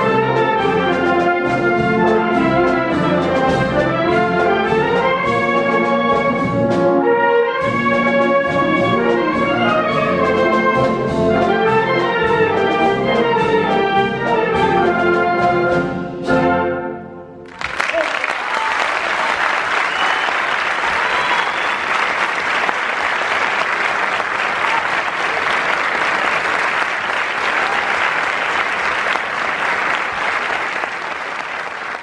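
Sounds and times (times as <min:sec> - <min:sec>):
music: 0:00.0 - 0:17.5
audience applauding: 0:17.5 - 0:32.0.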